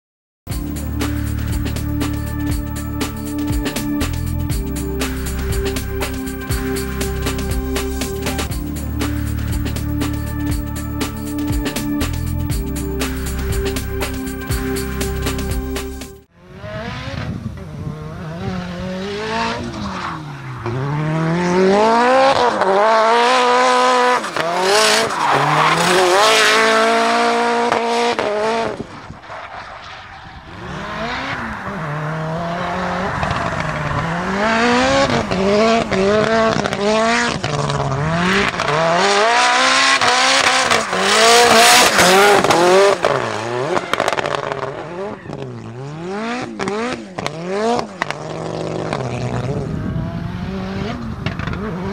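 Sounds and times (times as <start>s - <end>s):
car engine revving: 0.5s - 28.9s, 29.8s - 51.9s.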